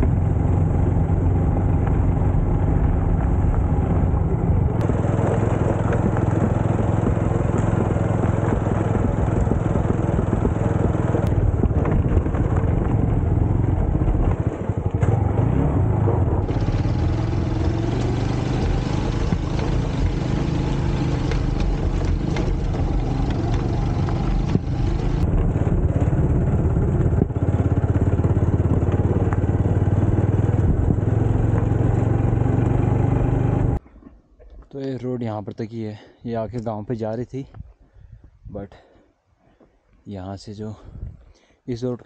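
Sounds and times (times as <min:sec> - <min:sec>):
motorcycle engine running: 0:00.0 - 0:33.8
stones knocking and rattling: 0:17.9 - 0:25.4.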